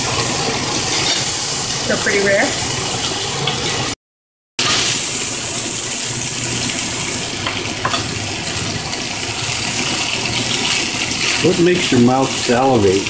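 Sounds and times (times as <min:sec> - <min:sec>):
steaks sizzling in skillets: 0:00.0 - 0:04.0, 0:04.6 - 0:13.0.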